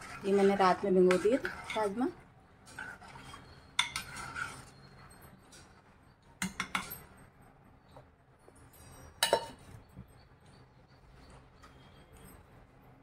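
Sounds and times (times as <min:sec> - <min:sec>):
metal utensils clinking on pot: 0:00.0 - 0:05.8, 0:06.4 - 0:07.4, 0:08.6 - 0:09.8.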